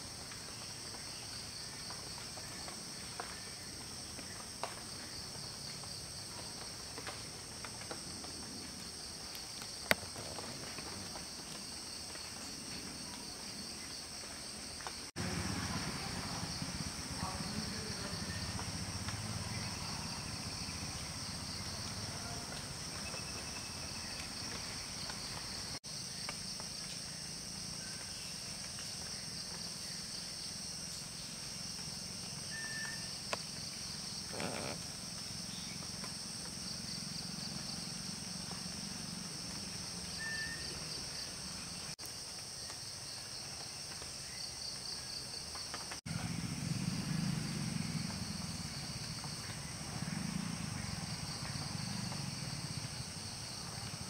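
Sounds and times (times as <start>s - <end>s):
insects trilling: 0.0s - 54.0s.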